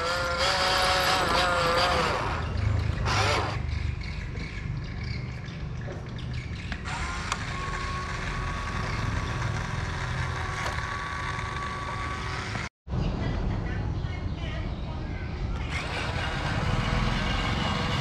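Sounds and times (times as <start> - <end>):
toy truck motor whine: 0.0 - 3.6, 6.8 - 12.7, 15.6 - 18.0.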